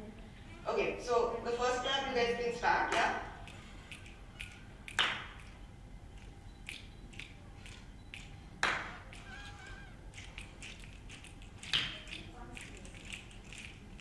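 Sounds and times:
audience finger snaps: 0:02.9 - 0:05.6, 0:06.2 - 0:14.0.

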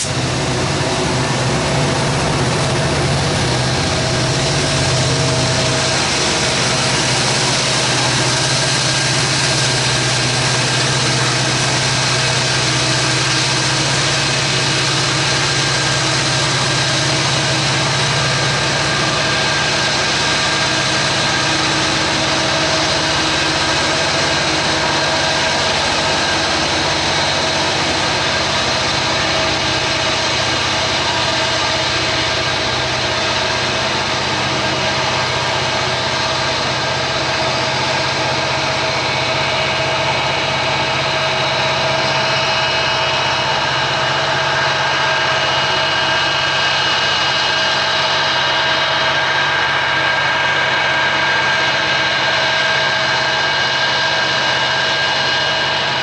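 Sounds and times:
diesel locomotive engines droning: 0:00.0 - 0:56.0
high whine: 0:00.0 - 0:56.0.

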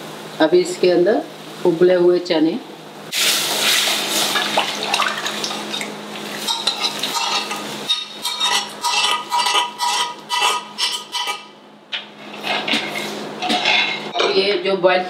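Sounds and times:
chickpeas sizzling in hot pan: 0:03.1 - 0:04.4
metal spoon scraping pot: 0:06.5 - 0:11.6, 0:12.4 - 0:14.2.

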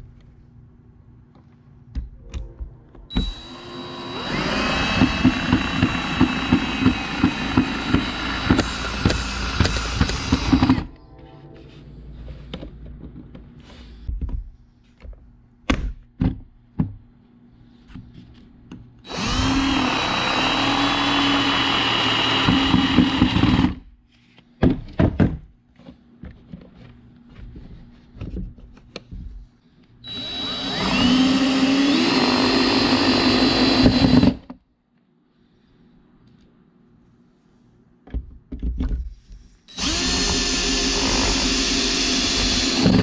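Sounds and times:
cordless drill driving screws: 0:03.2 - 0:10.9, 0:19.1 - 0:23.8, 0:30.1 - 0:34.4, 0:39.7 - 0:43.0
parts knocking and clicking: 0:04.9 - 0:10.9.

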